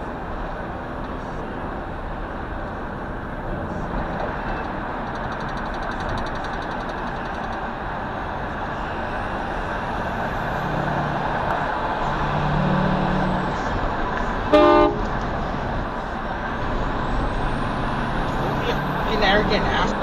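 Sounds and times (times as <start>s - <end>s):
traffic road and engine noise: 0.0s - 20.0s
short car horn toot: 14.5s - 15.0s.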